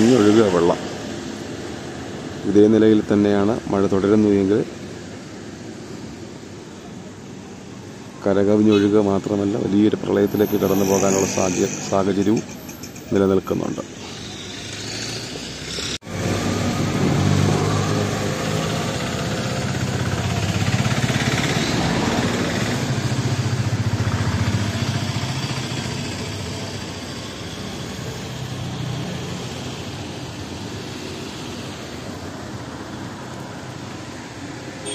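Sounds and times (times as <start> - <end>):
steady background noise: 0.0 - 34.9
vehicle engine passing by: 14.0 - 31.7.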